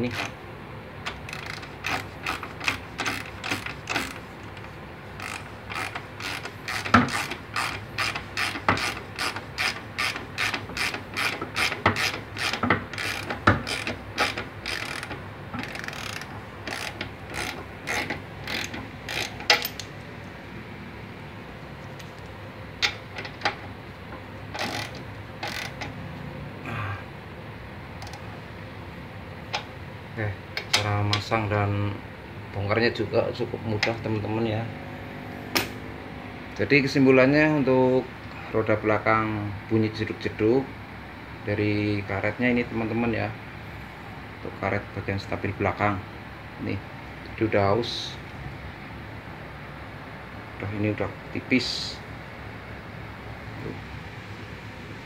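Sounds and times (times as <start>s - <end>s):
ratchet wrench clicking: 0.0s - 0.4s, 1.1s - 19.9s, 24.5s - 25.9s.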